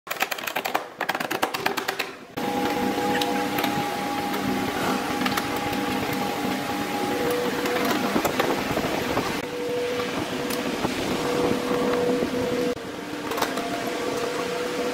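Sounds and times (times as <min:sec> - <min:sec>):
pulsing power tool: 0:02.4 - 0:12.8.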